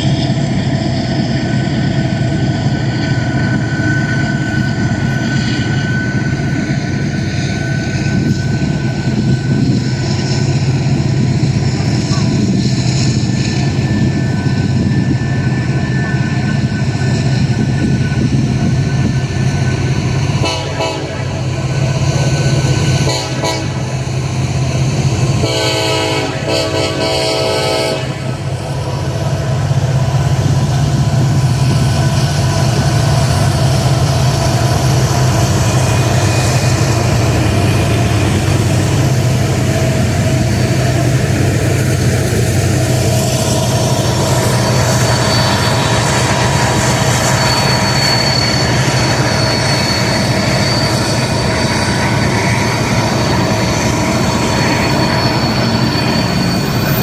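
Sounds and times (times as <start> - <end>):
diesel locomotive drone: 0.0 - 57.0
train horn: 20.4 - 21.5, 23.0 - 24.0, 25.3 - 28.5.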